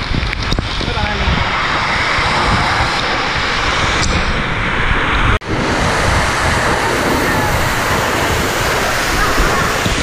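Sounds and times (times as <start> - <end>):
waterfall roaring: 5.4 - 10.0.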